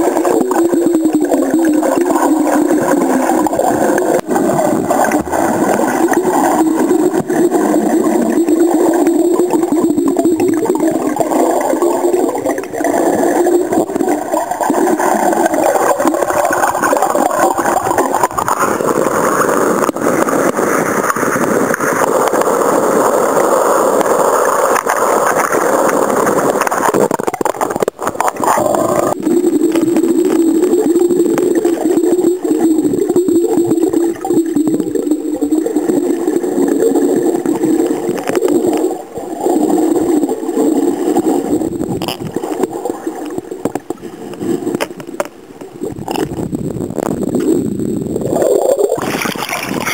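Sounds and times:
muffled underwater sloshing: 0:00.0 - 0:49.9.

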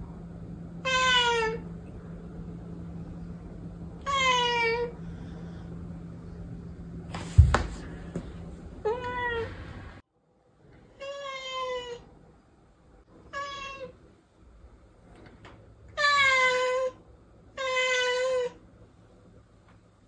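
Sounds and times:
cat meowing: 0:11.0 - 0:12.0, 0:16.0 - 0:17.0, 0:17.6 - 0:18.6.

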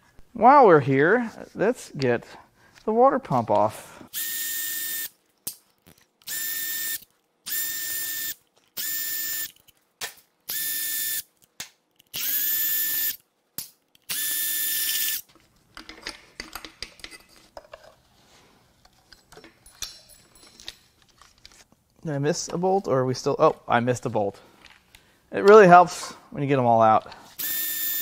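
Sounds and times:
electric ratchet whining: 0:04.1 - 0:05.1, 0:06.2 - 0:09.6, 0:10.5 - 0:11.2, 0:12.1 - 0:13.2, 0:14.1 - 0:15.2, 0:27.4 - 0:28.0.

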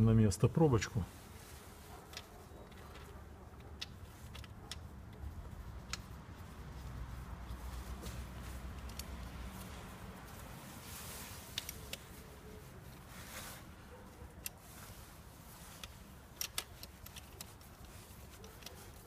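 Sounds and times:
ratchet wrench clicks: 0:15.8 - 0:18.8.

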